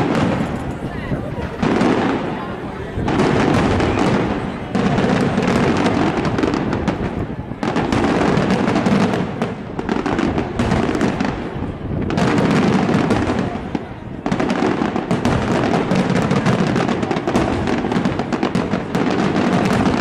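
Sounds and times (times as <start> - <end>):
fireworks bangs and crackling: 0.0 - 20.0.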